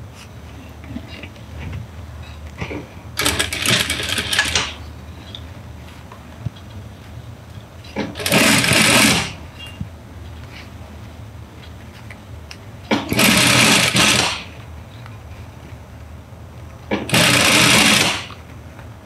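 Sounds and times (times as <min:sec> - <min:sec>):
sewing machine stitching: 0:03.2 - 0:04.8, 0:08.0 - 0:09.4, 0:12.9 - 0:14.5, 0:16.9 - 0:18.4.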